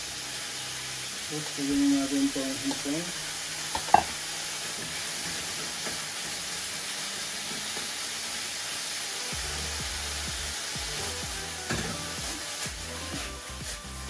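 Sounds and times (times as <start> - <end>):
food sizzling in a wok: 0.0 - 14.0.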